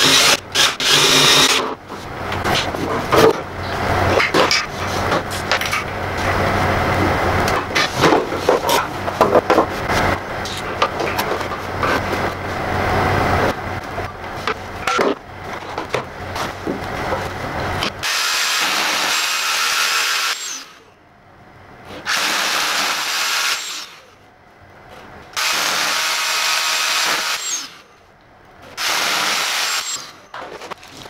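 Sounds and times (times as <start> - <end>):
rotary hammer drilling into wall: 0.0 - 1.6, 25.4 - 27.7, 28.8 - 30.2
knocks and clatter: 1.5 - 6.4, 7.0 - 12.4, 13.8 - 18.0.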